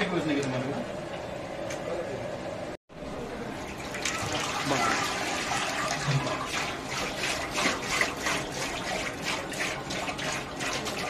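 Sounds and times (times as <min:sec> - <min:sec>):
liquid pouring and splashing: 0:03.6 - 0:11.0.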